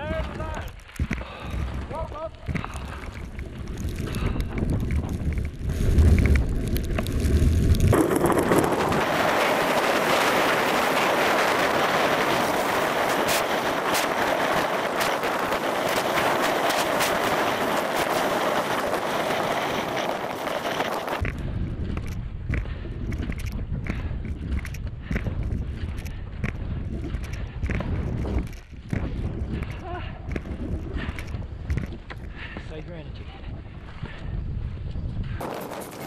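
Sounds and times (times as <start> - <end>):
wind noise on camera: 0.0 - 36.0
skis scraping over hard snow: 1.5 - 21.4, 35.4 - 36.0.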